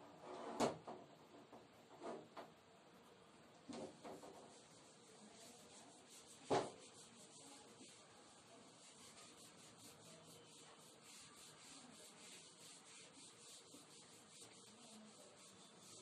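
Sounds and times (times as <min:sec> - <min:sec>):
eraser rubbing on whiteboard: 0:03.8 - 0:16.0.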